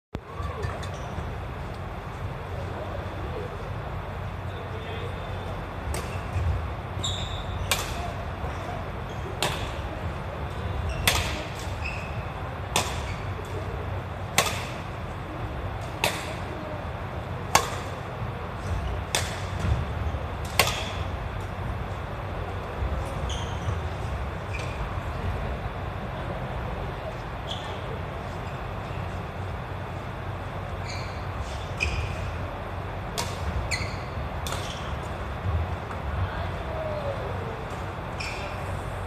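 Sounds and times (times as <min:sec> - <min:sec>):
rackets hitting shuttlecock: 0:05.9 - 0:08.2, 0:09.2 - 0:10.0, 0:10.6 - 0:11.8, 0:12.7 - 0:13.6, 0:14.3 - 0:15.0, 0:15.8 - 0:16.6, 0:17.5 - 0:21.5, 0:33.1 - 0:35.0.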